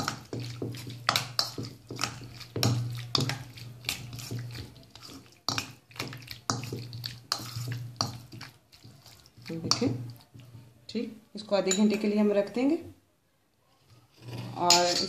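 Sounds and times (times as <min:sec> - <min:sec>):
spoon scraping steel bowl: 0:00.0 - 0:10.6, 0:14.1 - 0:15.0
wet squelches of stirring: 0:00.0 - 0:12.8.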